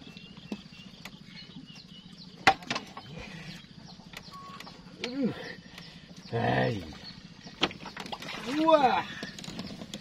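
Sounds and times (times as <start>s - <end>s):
faint bird chirps: 0.0s - 9.8s.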